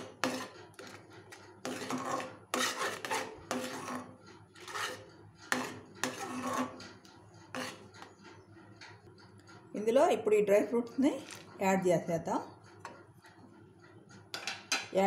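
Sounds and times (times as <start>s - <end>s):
spoon scraping metal pan: 0.0s - 9.0s.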